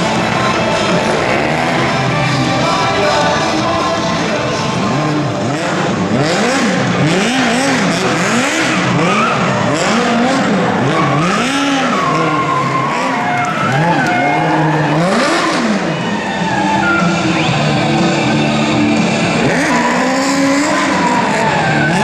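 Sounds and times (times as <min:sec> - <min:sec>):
car engine revving: 0:00.0 - 0:22.0
tyres squealing on tarmac: 0:08.3 - 0:22.0.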